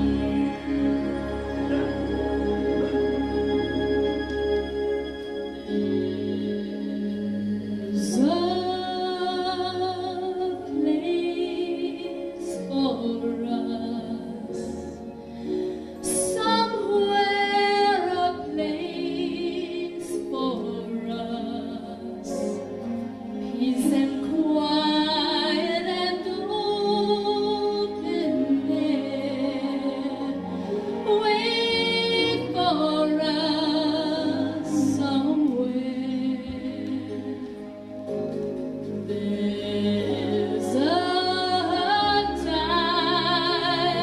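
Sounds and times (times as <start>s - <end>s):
instrumental accompaniment: 0.0s - 20.4s
woman singing a slow ballad: 5.7s - 15.1s, 16.0s - 22.6s, 23.4s - 37.8s, 39.0s - 44.0s.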